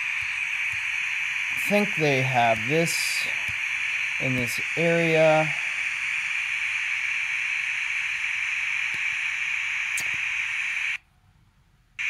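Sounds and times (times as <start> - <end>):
radio static hiss: 0.0 - 11.0
faint clicks: 8.8 - 11.0.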